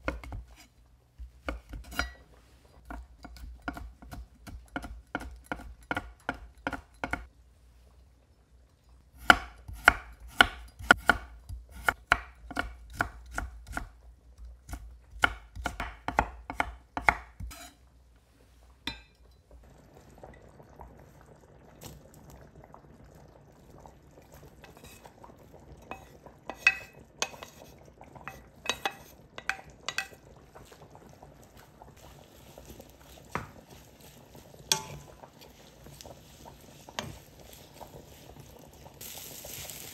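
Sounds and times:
faint steady hiss: 0:00.0 - 0:39.9
cookware clinking: 0:01.9 - 0:02.2, 0:18.9 - 0:19.5, 0:25.8 - 0:27.6, 0:28.2 - 0:30.2, 0:34.7 - 0:35.2
knife chopping on cutting board: 0:09.2 - 0:13.9, 0:14.7 - 0:17.7.

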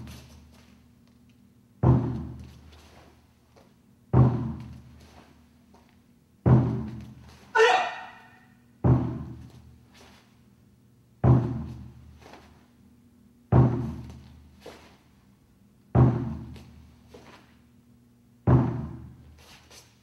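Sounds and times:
large drum beats ringing: 0:06.5 - 0:07.0.

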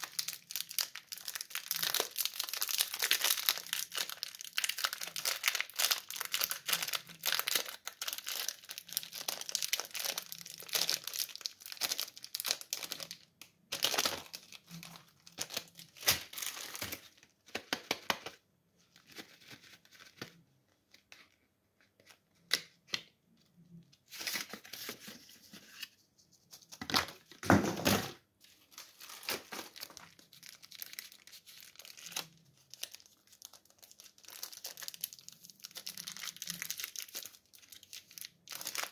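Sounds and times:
candy wrappers crinkling and tearing: 0:00.0 - 0:18.2, 0:28.5 - 0:38.9.

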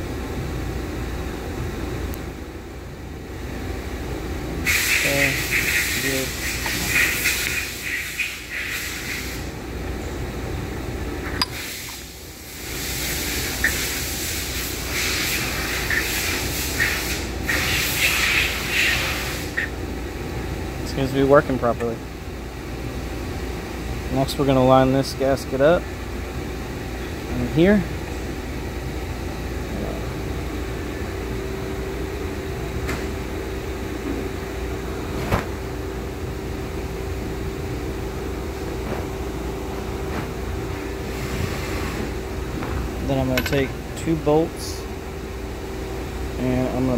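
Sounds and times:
valve piston rubbing hisses: 0:04.7 - 0:09.5, 0:11.6 - 0:19.7
machine hum: 0:25.7 - 0:46.9.

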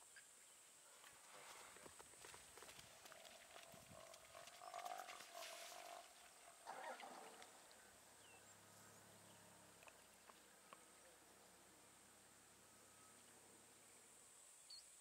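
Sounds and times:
faint animal call: 0:02.9 - 0:08.4.

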